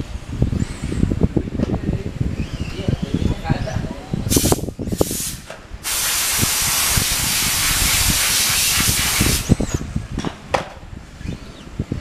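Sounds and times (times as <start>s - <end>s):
rushing air hiss: 4.3s - 9.6s.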